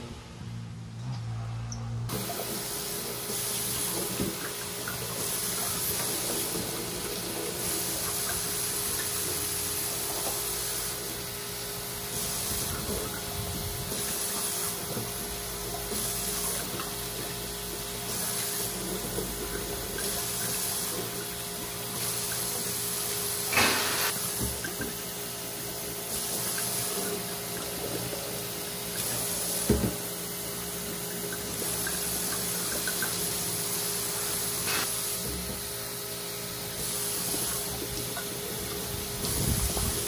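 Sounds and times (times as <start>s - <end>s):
tap water running into sink: 2.1s - 11.4s, 12.1s - 25.2s, 31.0s - 35.7s, 36.7s - 40.0s.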